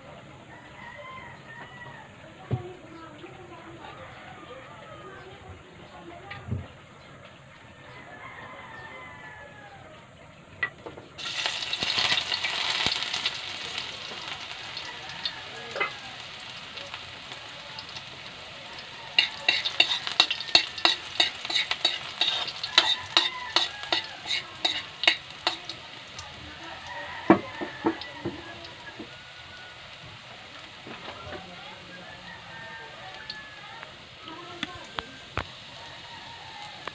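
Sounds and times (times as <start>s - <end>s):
utensil scraping and tapping wok: 10.7s - 29.2s
garlic and onion sizzling in oil: 11.1s - 36.9s.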